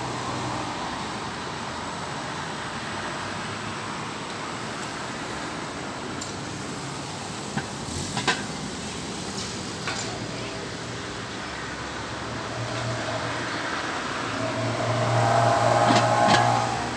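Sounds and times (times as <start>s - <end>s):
street traffic noise: 0.0s - 16.9s
trolleybus passing: 0.0s - 16.9s
car passing: 11.2s - 16.9s.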